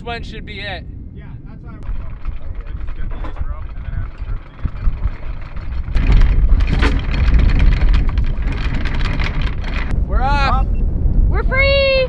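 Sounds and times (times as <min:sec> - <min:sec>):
low rumble: 0:00.0 - 0:12.0
anchor chain links clattering: 0:01.8 - 0:09.9.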